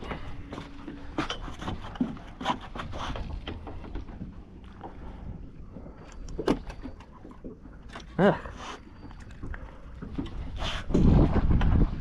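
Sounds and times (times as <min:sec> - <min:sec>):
rumble of wind and water: 0:00.0 - 0:12.0
knocks and taps on boat: 0:06.1 - 0:08.2, 0:09.1 - 0:12.0.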